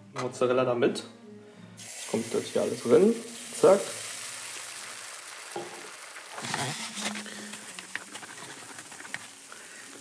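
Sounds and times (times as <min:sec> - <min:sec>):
seeds falling clicks: 0:05.5 - 0:10.0
plastic bag rustling: 0:05.9 - 0:10.0.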